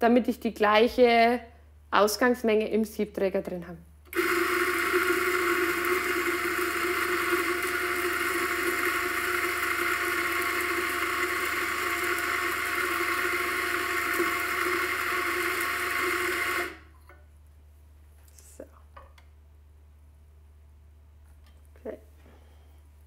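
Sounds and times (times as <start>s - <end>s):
coffee grinder running: 4.1s - 16.9s.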